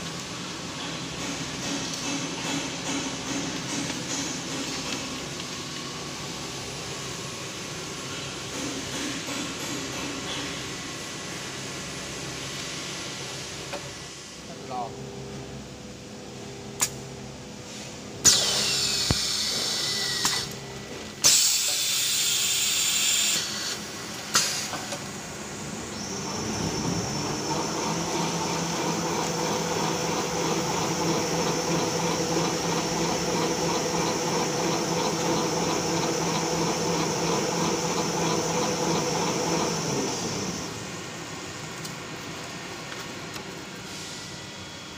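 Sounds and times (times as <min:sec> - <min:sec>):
machine high whine: 0:18.2 - 0:24.2, 0:25.0 - 0:41.4
machine humming: 0:25.0 - 0:41.5.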